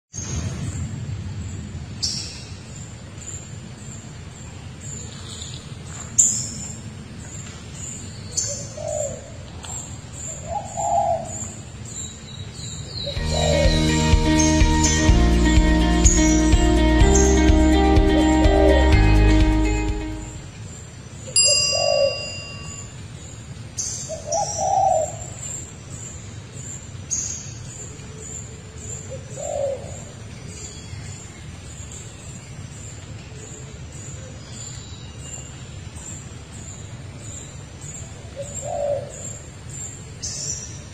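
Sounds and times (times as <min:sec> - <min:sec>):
birds chirping: 0:00.1 - 0:40.9
steady low background noise: 0:00.1 - 0:40.9
low cooing bird calls: 0:08.3 - 0:11.7, 0:12.9 - 0:13.8, 0:21.3 - 0:22.8, 0:24.0 - 0:25.4, 0:28.0 - 0:30.2, 0:38.0 - 0:39.5
low bird calls: 0:12.9 - 0:13.9
bright chime: 0:21.4 - 0:23.0.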